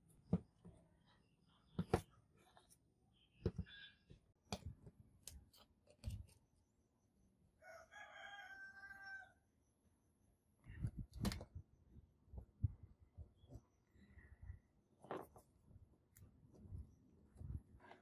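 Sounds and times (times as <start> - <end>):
rooster crowing: 7.6 - 9.4.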